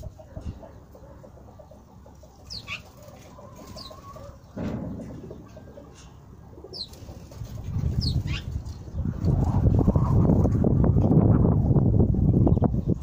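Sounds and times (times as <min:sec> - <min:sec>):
quail chirps: 0:00.0 - 0:10.1.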